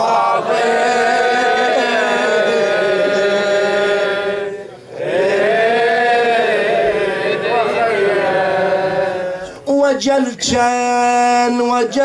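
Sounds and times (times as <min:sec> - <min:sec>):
man chanting into microphone: 0:09.4 - 0:12.0.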